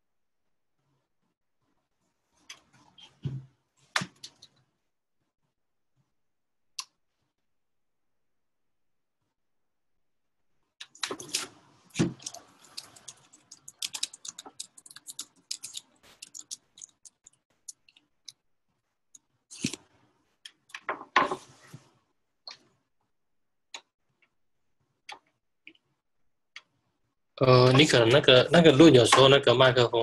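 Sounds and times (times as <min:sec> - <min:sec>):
keyboard and mouse clicks: 0:10.8 - 0:18.4.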